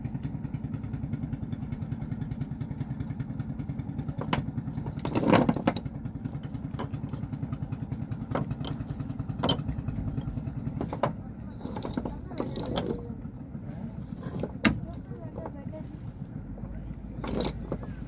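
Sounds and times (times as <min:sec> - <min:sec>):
boat engine putting: 0:00.0 - 0:18.0
knocks and clatters: 0:04.0 - 0:13.2, 0:14.0 - 0:15.6, 0:17.0 - 0:18.0.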